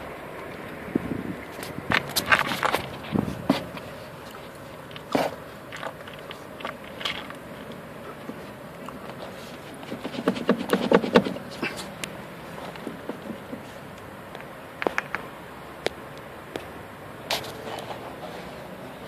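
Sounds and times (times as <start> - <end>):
suspension clunking: 0.0 - 15.2.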